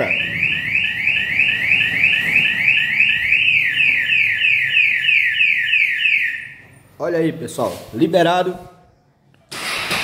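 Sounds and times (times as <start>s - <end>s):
motorcycle alarm siren wailing: 0.0s - 6.6s.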